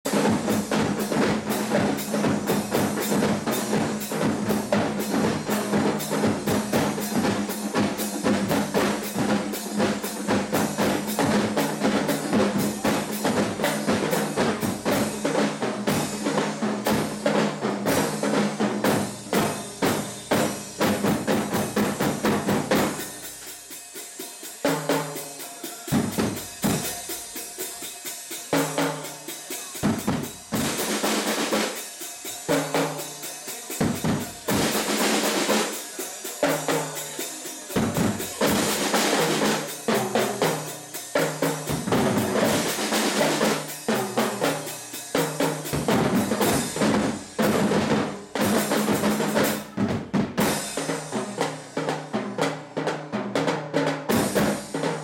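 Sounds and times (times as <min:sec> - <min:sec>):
bass drum: 0:00.0 - 0:23.5, 0:29.8 - 0:31.1, 0:41.2 - 0:44.4, 0:45.2 - 0:50.8
hand cymbals: 0:00.0 - 0:49.8, 0:50.4 - 0:52.2
snare drums: 0:00.0 - 0:55.0.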